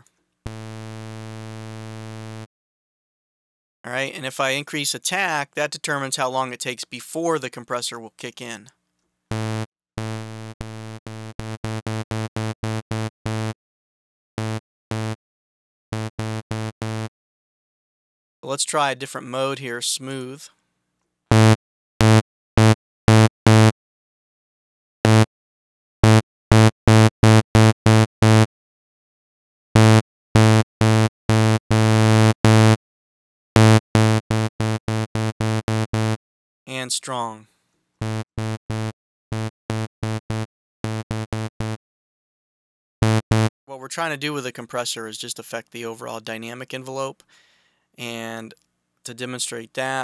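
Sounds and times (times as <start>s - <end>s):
low synthesizer notes repeating: 43.0s - 43.5s.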